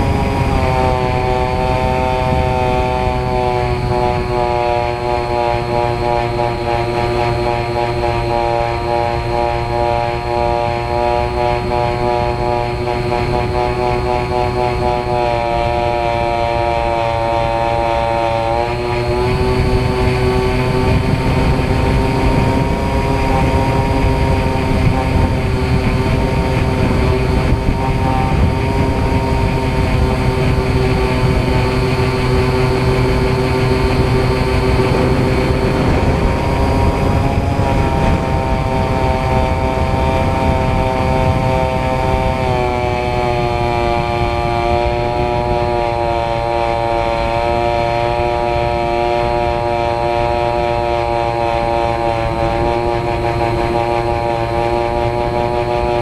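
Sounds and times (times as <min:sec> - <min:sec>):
wind rushing: 0:00.0 - 0:14.9, 0:18.0 - 0:45.9
model airplane motor and propeller: 0:00.0 - 0:56.0.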